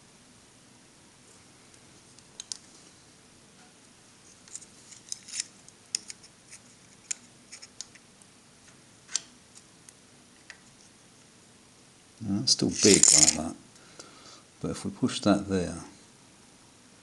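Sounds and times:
metal parts clicking on steel bench: 12.7s - 13.5s.

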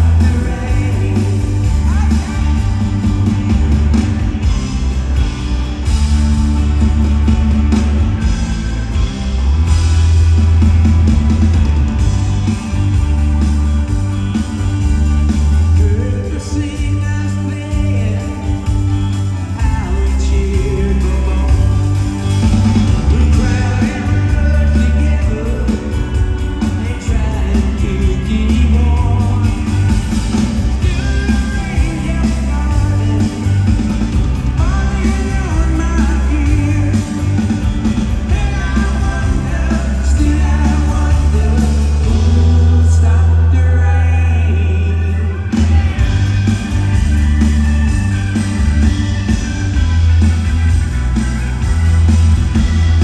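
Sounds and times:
man singing: 0.0s - 4.0s, 15.6s - 22.2s, 22.9s - 30.0s, 30.7s - 33.9s, 34.5s - 46.6s
rock band playing: 0.0s - 53.0s.

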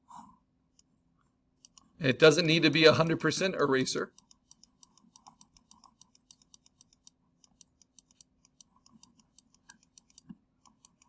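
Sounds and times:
faint rapid clicking: 3.9s - 11.0s.

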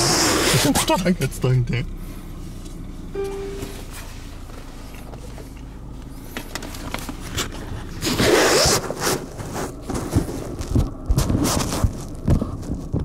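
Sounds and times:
low steady hum: 0.4s - 8.1s
rustling and scraping handling noise: 2.4s - 13.0s.

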